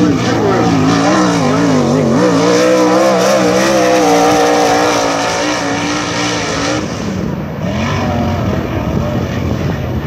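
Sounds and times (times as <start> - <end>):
race car engine at speed: 0.0 - 10.0.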